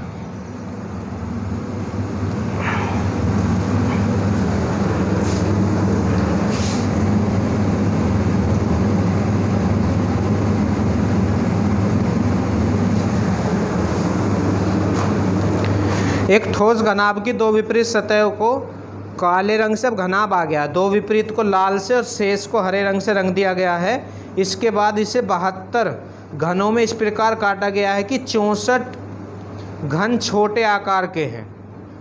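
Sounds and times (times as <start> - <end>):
steady low hum: 0.0 - 32.0
noisy rushing: 1.2 - 16.4.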